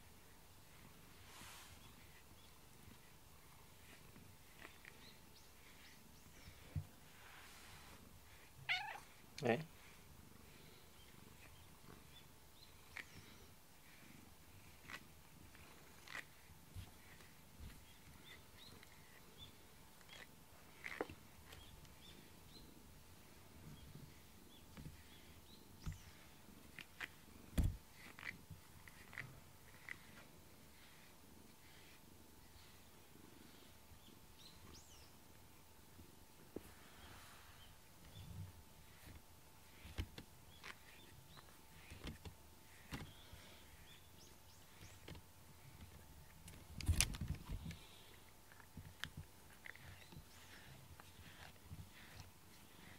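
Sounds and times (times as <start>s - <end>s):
brush rustling cat fur: 0.0s - 33.7s, 35.9s - 52.9s
brush rustling through fur: 0.6s - 10.0s.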